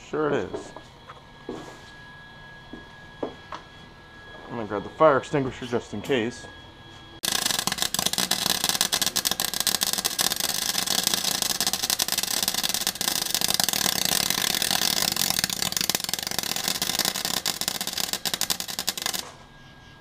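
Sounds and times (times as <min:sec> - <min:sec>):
welder crackling and sputtering: 0:07.2 - 0:19.4.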